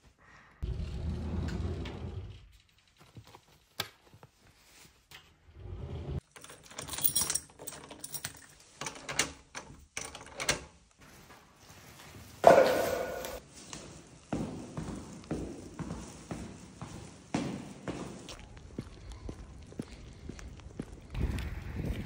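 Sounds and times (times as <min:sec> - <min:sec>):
keys jangling: 0:06.2 - 0:10.6
handling knocks and rustles: 0:06.2 - 0:18.4.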